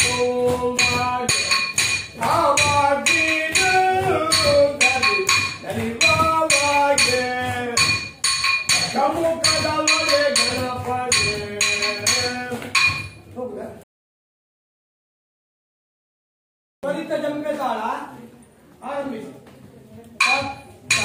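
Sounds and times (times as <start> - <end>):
person chanting rhythm syllables: 0.0 - 13.3, 20.2 - 21.0
small hand cymbals ringing: 7.8 - 13.2.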